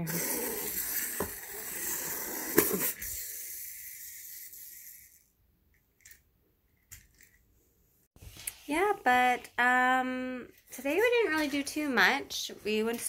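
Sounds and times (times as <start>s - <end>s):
clockwork toy whirring: 0.0s - 5.4s.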